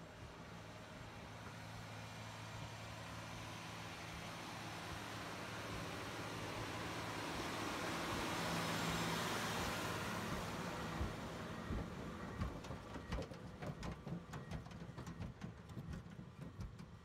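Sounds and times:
tractor diesel engine running: 0:00.0 - 0:17.0
roller knocking and crunching on soil: 0:10.3 - 0:17.0.

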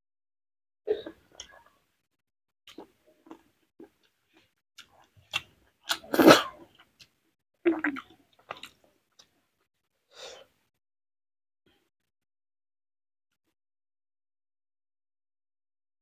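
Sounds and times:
wet chewing and mouth smacks: 0:07.7 - 0:09.3.

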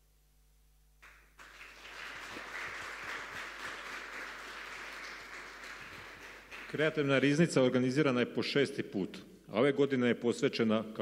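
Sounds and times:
audience applauding: 0:01.0 - 0:07.2.

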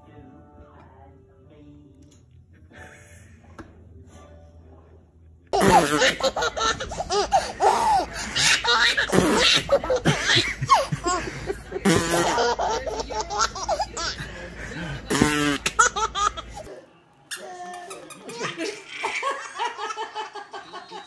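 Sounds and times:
toddler laughing: 0:05.6 - 0:11.3
baby laughing: 0:05.6 - 0:14.2, 0:15.2 - 0:16.7, 0:17.3 - 0:21.0
man laughing: 0:09.7 - 0:12.9.

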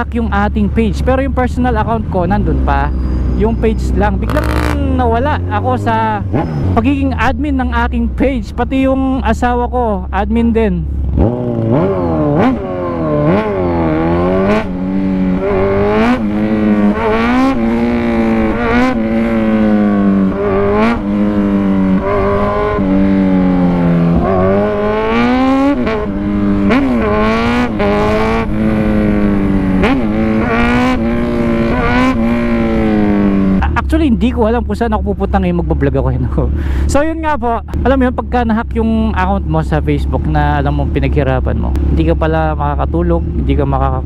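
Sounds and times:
motorcycle engine revving: 0:00.0 - 0:08.3, 0:10.8 - 0:34.8.

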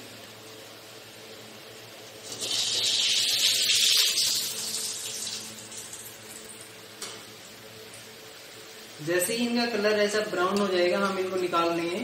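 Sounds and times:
oil sizzling: 0:02.0 - 0:06.7.

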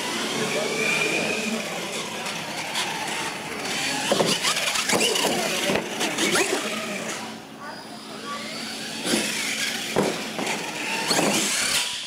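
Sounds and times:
toy truck motor whining: 0:00.0 - 0:12.0
truck clattering on concrete: 0:04.0 - 0:06.0, 0:09.0 - 0:11.5.

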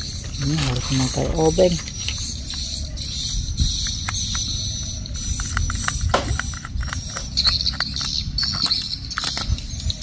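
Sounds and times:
steady high-pitched buzz: 0:00.0 - 0:10.0.

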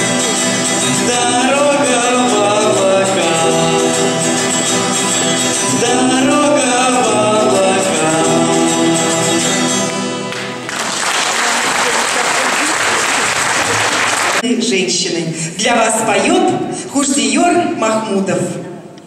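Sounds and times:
strummed acoustic guitars: 0:00.0 - 0:12.0.

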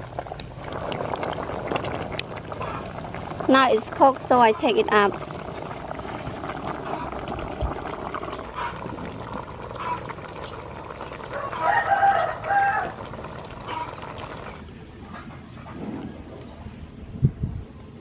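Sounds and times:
rooster crowing: 0:11.3 - 0:13.1.

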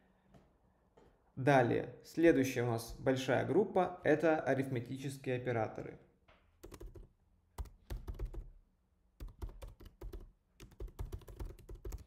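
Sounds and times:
keyboard typing: 0:06.6 - 0:08.6, 0:09.2 - 0:12.0.

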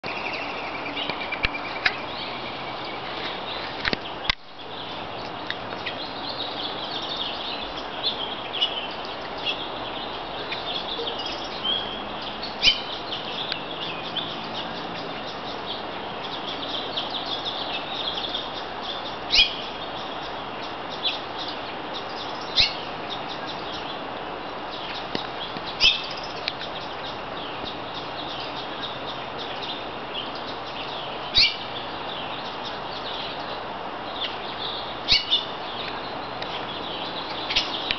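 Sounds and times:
songbirds chirping: 0:00.0 - 0:37.9.

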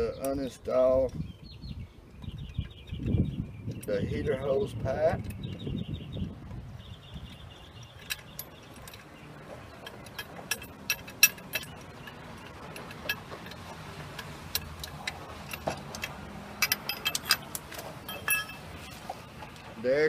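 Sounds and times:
metallic clicks of hand tools: 0:09.8 - 0:18.6.

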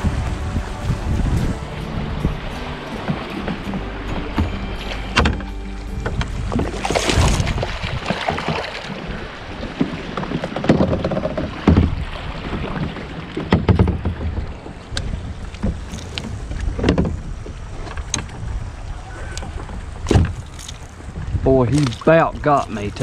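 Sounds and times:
water slapping and sloshing: 0:00.0 - 0:23.0
fish thrashing and splashing: 0:06.2 - 0:14.4
sharp knocks and clicks: 0:09.8 - 0:12.0.

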